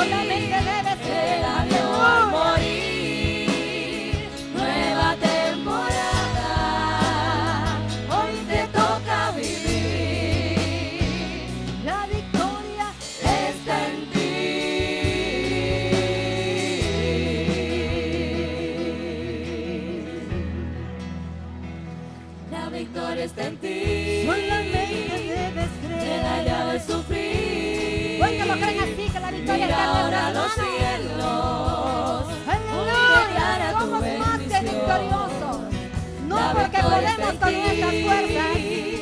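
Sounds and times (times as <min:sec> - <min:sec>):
woman singing with vibrato: 0:00.0 - 0:20.4, 0:22.5 - 0:39.0
backing singers: 0:00.0 - 0:20.6, 0:22.5 - 0:39.0
band with steady bass: 0:00.0 - 0:39.0.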